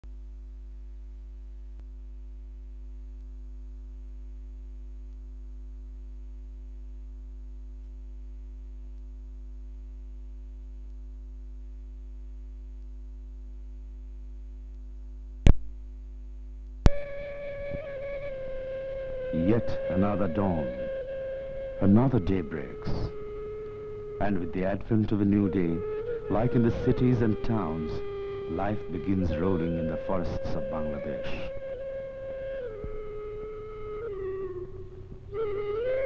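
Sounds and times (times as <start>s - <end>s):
electrical mains hum: 0.1s - 36.0s
sharp click: 15.5s - 15.8s.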